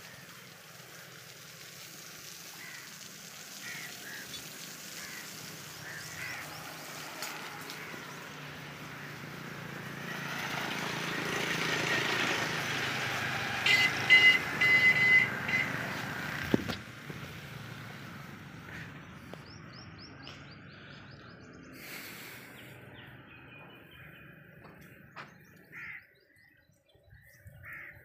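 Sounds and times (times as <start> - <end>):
vehicle passing: 3.6 - 25.8
vehicle horn toots: 13.6 - 16.0.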